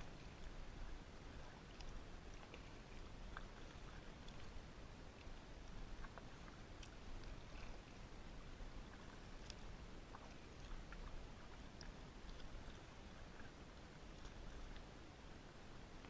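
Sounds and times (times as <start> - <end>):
low steady rumble: 0.0 - 16.0
paddle dripping and splashing: 0.0 - 16.0
small ticks: 8.8 - 13.5.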